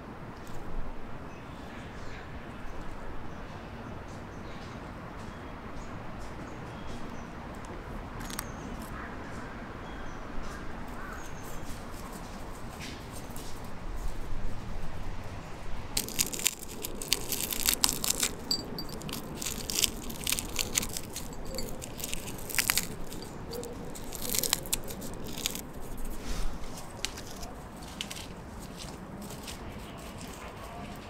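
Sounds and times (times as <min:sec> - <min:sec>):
dried fish crackling and snapping: 0:08.2 - 0:08.9, 0:15.9 - 0:26.2, 0:26.8 - 0:30.4.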